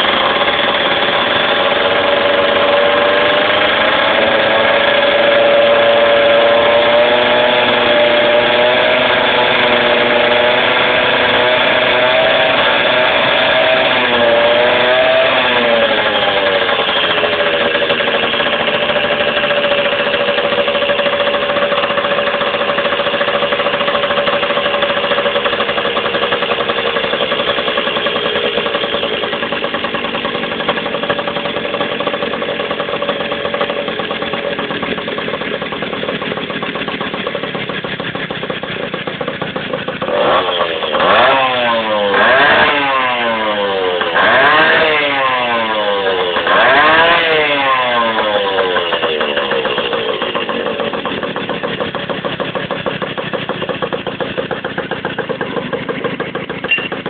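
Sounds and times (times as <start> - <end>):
two-stroke motorcycle engine idling: 0.0 - 57.0
motorcycle throttle blips: 11.5 - 57.0.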